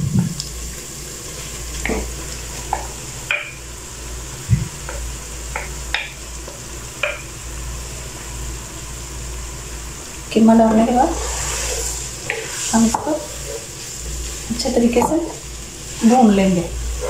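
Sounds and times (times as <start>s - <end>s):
meat sizzling in oil: 0.0s - 17.0s
wooden spoon tapping bowl: 7.0s - 7.3s.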